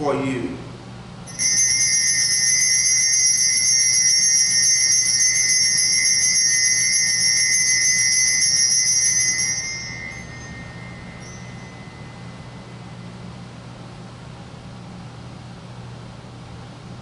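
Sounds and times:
low steady hum: 0.0 - 17.0
altar bells jingling: 1.3 - 13.4.

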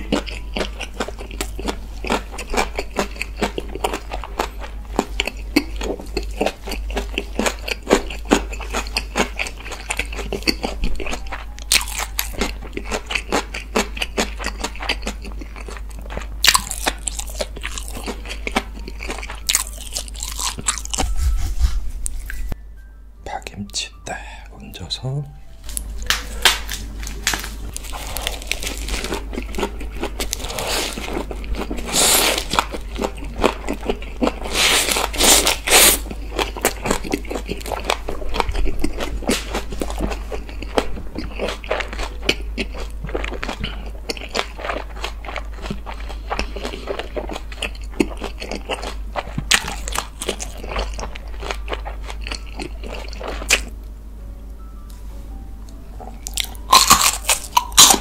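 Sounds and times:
lettuce crunching: 0.0 - 21.0, 25.6 - 53.7, 56.1 - 58.0.

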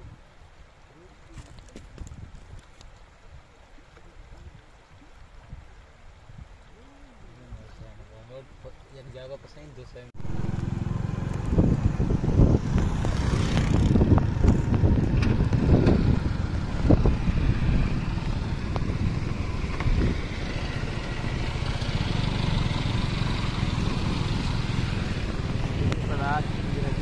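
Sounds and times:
heavy low rumble: 10.2 - 27.0
motorcycles passing: 10.2 - 27.0.

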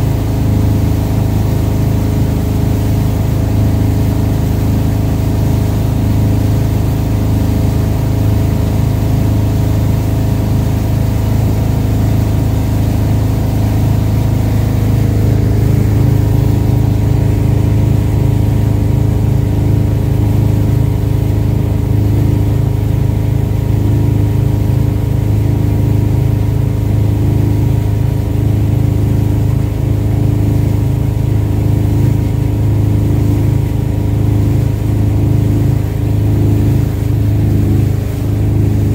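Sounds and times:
boat engine droning: 0.0 - 38.9.

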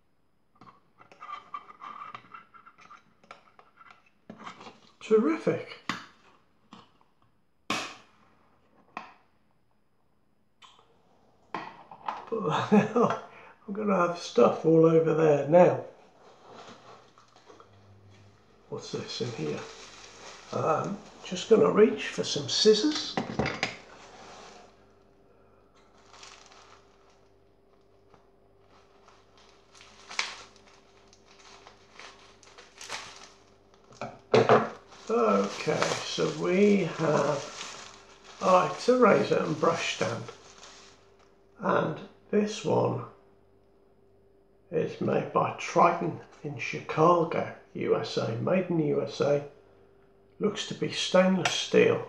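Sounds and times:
bubble wrap crinkling: 16.1 - 17.7, 18.4 - 23.0, 23.8 - 25.1, 25.7 - 41.4
faint rustle: 16.1 - 21.6, 34.8 - 41.3.

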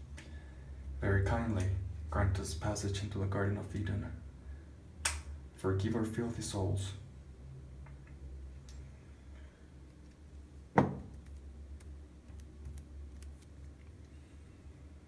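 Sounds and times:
low steady hum: 0.0 - 15.0
sharp click: 5.0 - 5.3.

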